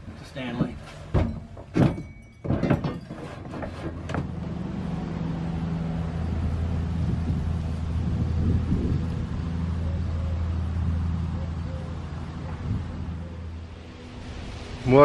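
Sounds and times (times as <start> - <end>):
sharp knocks and clatters: 0.0 - 4.4
vehicle engine drone: 3.8 - 15.0.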